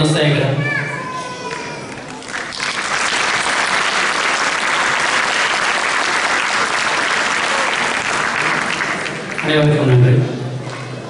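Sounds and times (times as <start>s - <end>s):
audience applauding: 1.5s - 10.1s.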